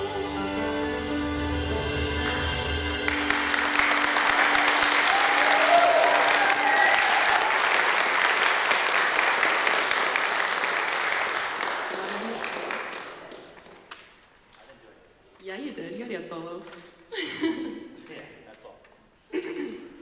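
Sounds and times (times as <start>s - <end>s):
piano notes ringing: 0.0s - 5.6s
audience applauding: 2.2s - 14.0s.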